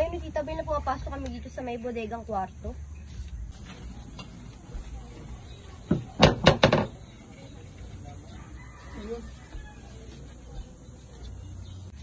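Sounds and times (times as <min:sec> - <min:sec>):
knocking on a door: 0:05.9 - 0:07.0.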